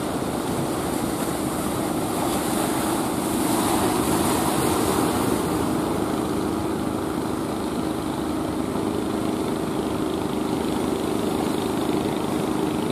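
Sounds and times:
surf breaking: 0:00.0 - 0:07.5
boat engine humming: 0:00.0 - 0:12.9.

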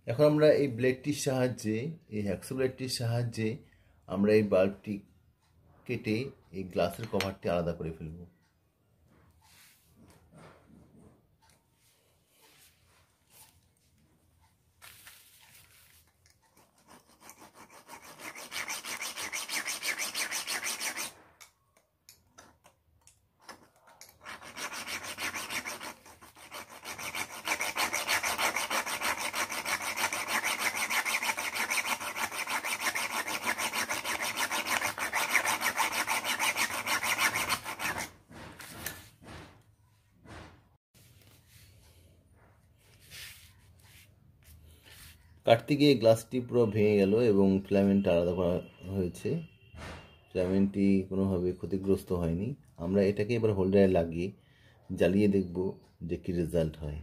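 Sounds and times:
hacksaw sawing glass: 0:16.5 - 0:21.5, 0:23.4 - 0:39.0.

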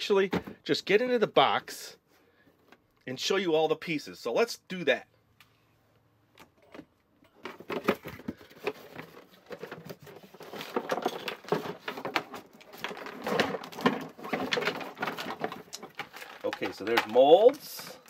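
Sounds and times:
plastic pieces clattering: 0:07.4 - 0:18.0
cardboard flaps rustling: 0:07.5 - 0:17.7.

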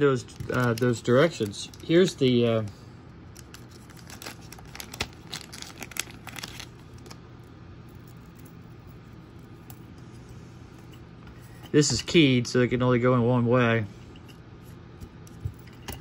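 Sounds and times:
faint low hum: 0:00.0 - 0:16.0
plastic packaging crinkling: 0:00.2 - 0:02.7, 0:03.3 - 0:07.2.

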